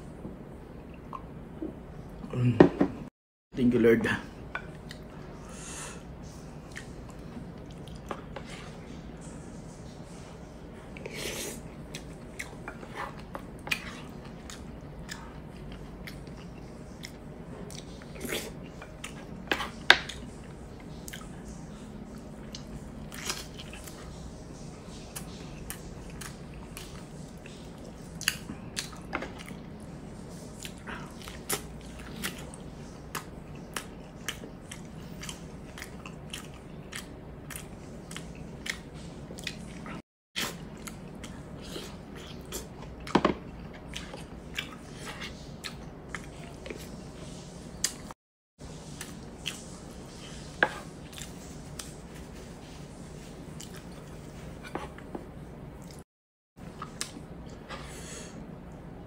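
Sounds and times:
chewing and biting: 0:30.6 - 0:44.9.

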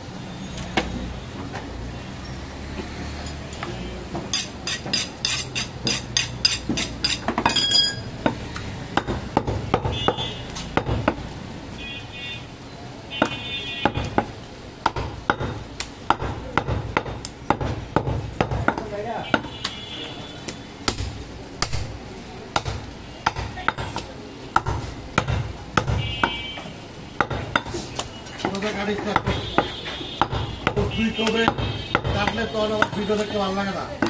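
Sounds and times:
knife chopping on wooden block: 0:04.3 - 0:07.6, 0:13.2 - 0:19.5, 0:22.5 - 0:26.4, 0:28.4 - 0:33.0.

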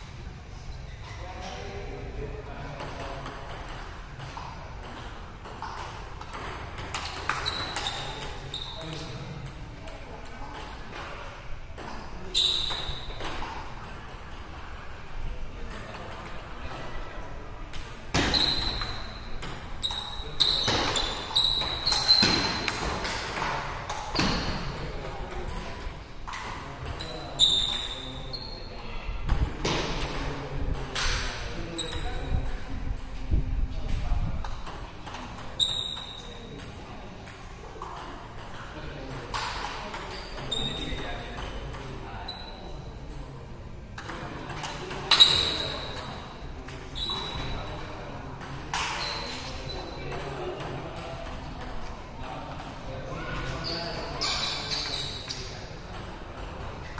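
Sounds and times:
table tennis ball hits: 0:02.8 - 0:08.4.

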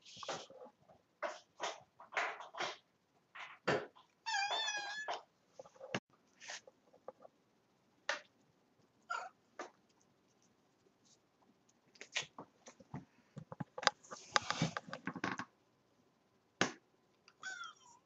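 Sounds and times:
cat meowing: 0:04.2 - 0:05.2, 0:17.4 - 0:18.0
light clicks and scratches: 0:09.6 - 0:15.4.

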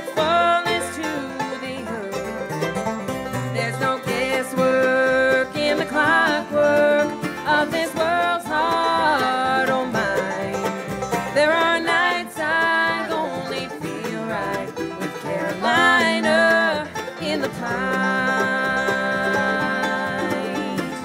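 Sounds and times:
bluegrass band playing: 0:00.0 - 0:21.0.

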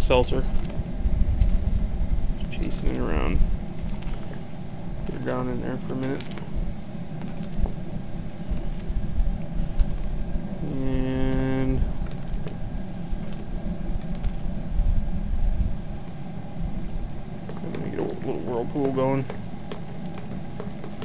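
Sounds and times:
crickets chirping: 0:00.0 - 0:21.0
gas burner roaring: 0:00.0 - 0:21.0
steady hum: 0:00.0 - 0:21.0.

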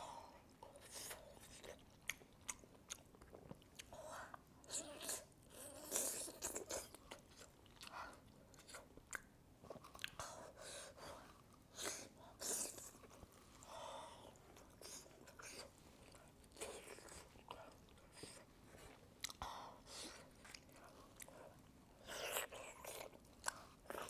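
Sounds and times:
person chewing: 0:00.7 - 0:10.4, 0:14.3 - 0:19.4, 0:20.1 - 0:24.0.

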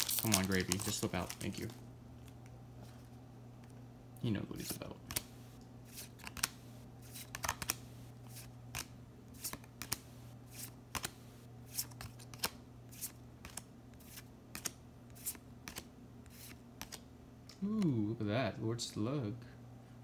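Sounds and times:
steady low hum: 0:00.0 - 0:20.0
trading cards flicking: 0:06.0 - 0:11.2, 0:11.8 - 0:17.0.

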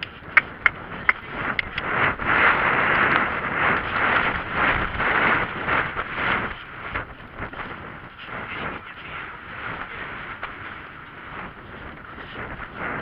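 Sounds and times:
sharp clicks: 0:00.0 - 0:01.9
wind buffeting microphone: 0:00.0 - 0:13.0.

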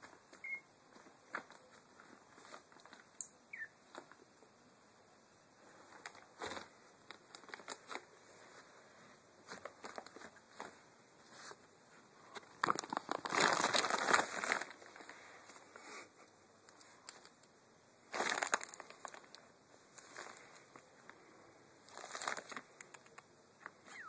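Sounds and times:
plastic bag rustling: 0:05.9 - 0:08.7, 0:12.4 - 0:15.6, 0:18.1 - 0:20.8, 0:21.8 - 0:23.0.

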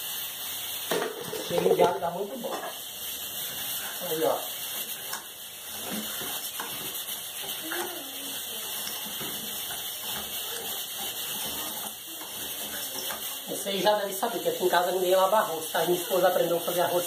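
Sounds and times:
rice and garlic sizzling in oil: 0:00.0 - 0:17.0.

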